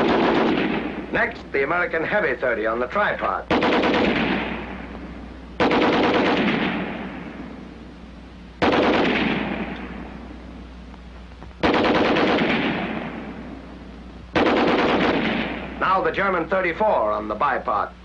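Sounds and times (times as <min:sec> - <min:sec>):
machine gun automatic fire: 0:00.0 - 0:01.0, 0:03.5 - 0:04.8, 0:05.6 - 0:07.1, 0:08.6 - 0:09.8, 0:11.6 - 0:13.3, 0:14.3 - 0:16.0
gunfire echo: 0:00.0 - 0:01.2, 0:03.5 - 0:07.7, 0:08.6 - 0:10.5, 0:11.6 - 0:16.0.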